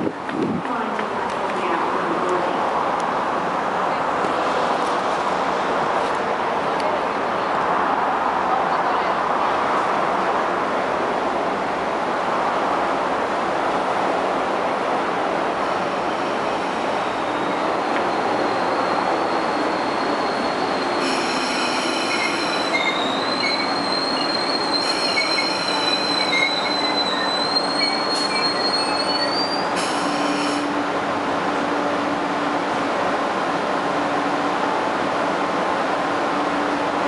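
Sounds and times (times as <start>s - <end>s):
train brake squeal: 17.0s - 30.7s
short multi-tone squeals: 17.3s - 30.7s.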